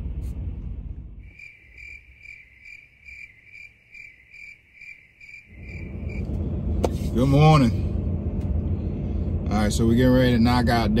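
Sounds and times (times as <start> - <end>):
low rumble: 0.0 - 1.3, 5.5 - 11.0
insect chirping: 1.2 - 6.3.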